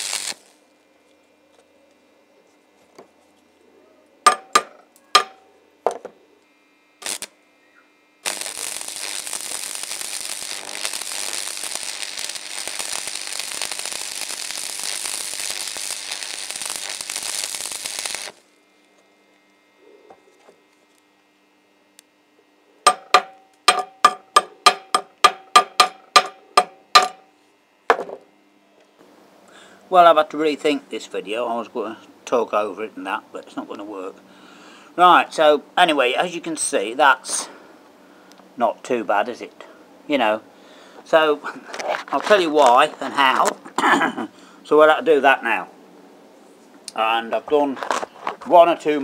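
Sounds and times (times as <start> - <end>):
welding arc crackling: 0.0 - 0.7, 7.0 - 7.4, 8.2 - 19.5, 22.9 - 27.2
hammer chipping steel plate: 4.3 - 5.4, 22.9 - 27.2.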